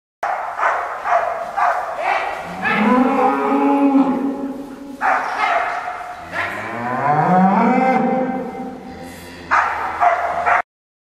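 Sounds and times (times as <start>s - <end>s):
cattle mooing: 2.4s - 4.6s, 6.2s - 10.5s.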